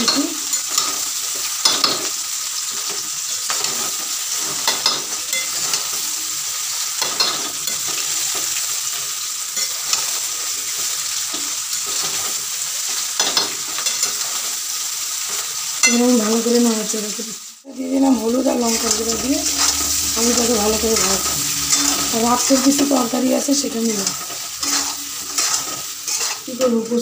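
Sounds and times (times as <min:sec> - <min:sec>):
rice sizzling in a pan: 0:00.0 - 0:27.0
spatula scraping a pan: 0:18.5 - 0:27.0.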